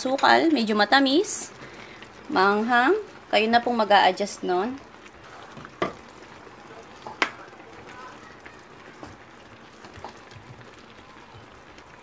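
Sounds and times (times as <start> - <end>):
low simmering hiss: 0.0 - 12.0
wooden spoon stirring sauce: 4.8 - 12.0
spoon knocking pan: 5.5 - 6.1, 7.0 - 8.0, 9.8 - 10.6.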